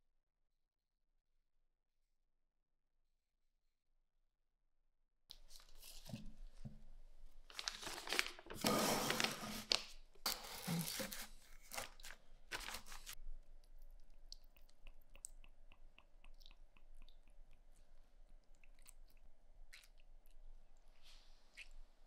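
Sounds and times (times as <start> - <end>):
plastic sheeting crinkling: 7.5 - 13.2.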